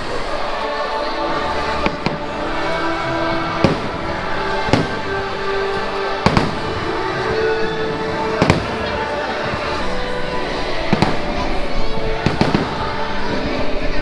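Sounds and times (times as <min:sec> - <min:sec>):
steady music: 0:00.0 - 0:14.0
fireworks bangs: 0:01.8 - 0:09.8, 0:10.8 - 0:13.6.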